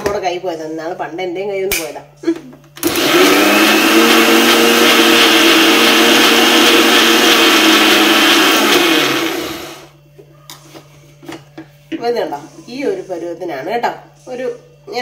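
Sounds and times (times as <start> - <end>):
mixer grinder running: 2.8 - 10.0.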